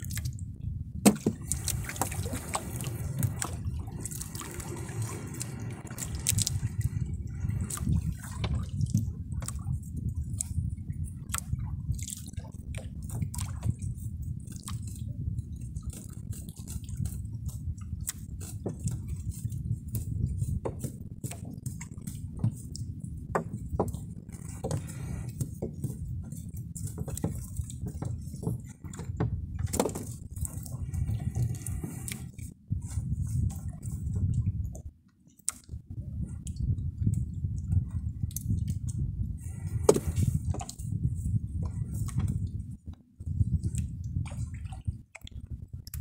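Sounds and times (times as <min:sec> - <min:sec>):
water sloshing around boat: 0:00.0 - 0:46.0.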